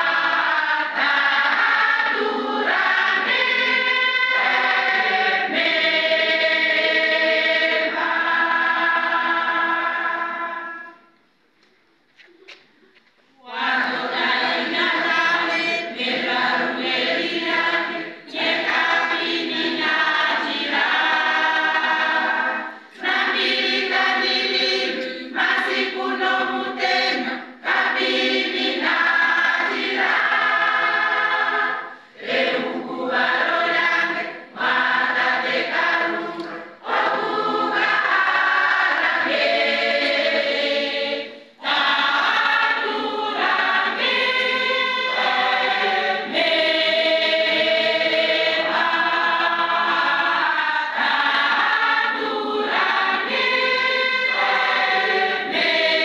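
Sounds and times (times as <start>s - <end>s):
women's choir singing: 0.0s - 11.2s, 13.3s - 56.0s
choir breaths: 21.1s - 23.1s, 31.5s - 32.8s.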